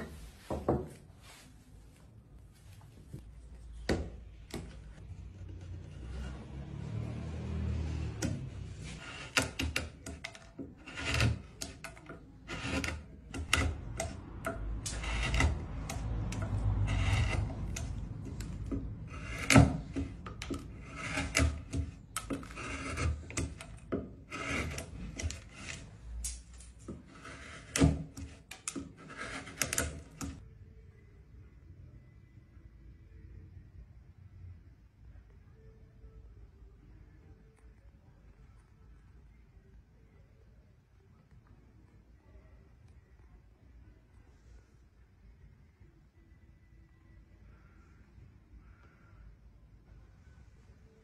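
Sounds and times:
chisels cutting into wood: 8.1s - 30.4s.

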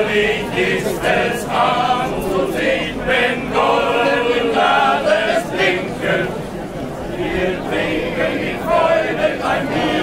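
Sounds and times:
male voice choir singing: 0.0s - 6.4s, 7.1s - 10.0s.

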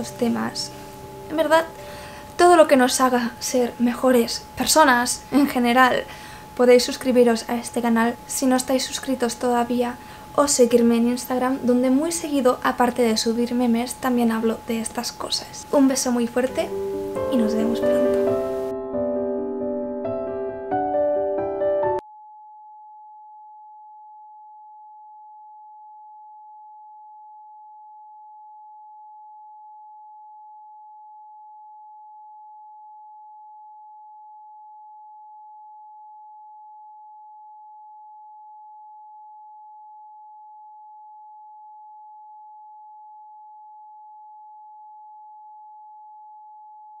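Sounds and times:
steady electronic tone: 0.0s - 3.8s.

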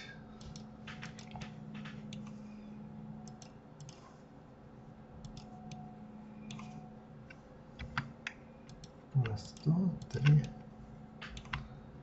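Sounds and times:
steady low hum: 0.0s - 12.0s
mouse and keyboard clicks: 6.5s - 6.8s.

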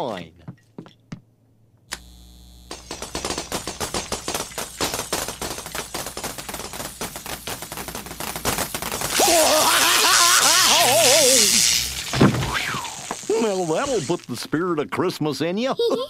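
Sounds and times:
electric hum: 1.8s - 14.7s
rapid crackling electric zaps: 1.9s - 14.6s.

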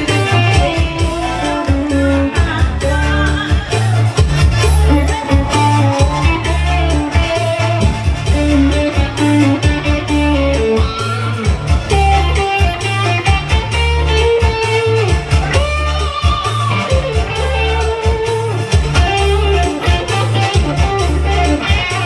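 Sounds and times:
bass notes: 0.0s - 22.0s
drum beat: 0.0s - 22.0s
guitar melody: 0.0s - 22.0s.

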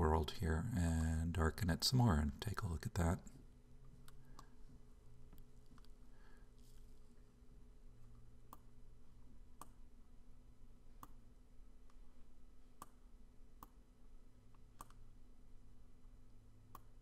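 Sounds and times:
faint steady hum: 0.0s - 17.0s
computer mouse clicking: 5.3s - 6.0s, 9.6s - 9.8s, 12.8s - 13.0s, 14.8s - 15.0s.

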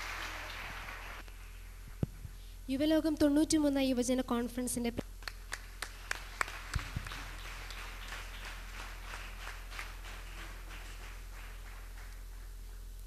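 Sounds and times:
audience clapping: 0.0s - 1.3s, 5.2s - 13.0s
low electrical hum: 0.0s - 13.0s.

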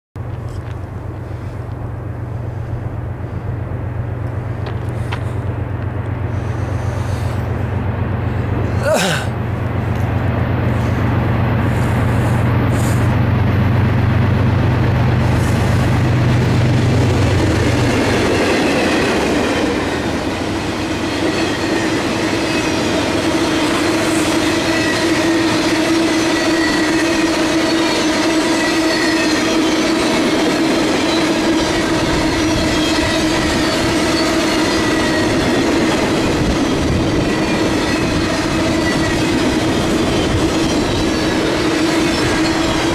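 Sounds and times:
locomotive engine humming: 0.2s - 42.9s
train wheels on rails: 0.2s - 42.9s
ringing wheel squeal: 17.3s - 42.9s.

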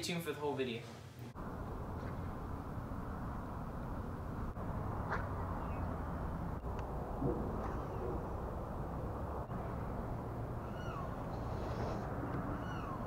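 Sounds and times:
low outdoor rumble: 0.0s - 13.0s
bird mewing calls: 5.1s - 6.1s, 7.2s - 13.0s.

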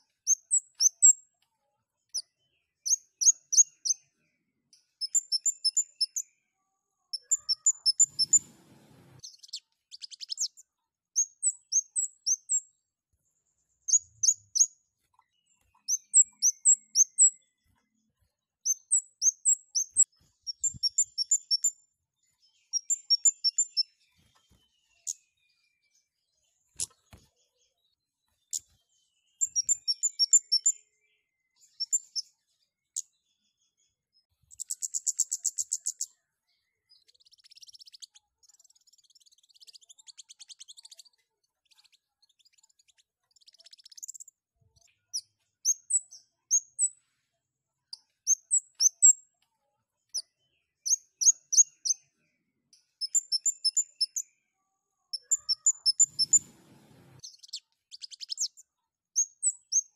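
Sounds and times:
bird chirping in bursts: 0.2s - 1.2s, 2.8s - 4.0s, 4.7s - 6.3s, 7.1s - 12.8s, 13.8s - 17.6s, 18.6s - 21.8s, 22.5s - 26.0s, 28.4s - 30.8s, 31.7s - 32.2s, 34.5s - 36.1s, 36.9s - 44.3s, 48.2s - 49.2s, 50.8s - 52.0s, 52.9s - 54.2s, 55.1s - 58.6s, 59.2s - 59.9s.

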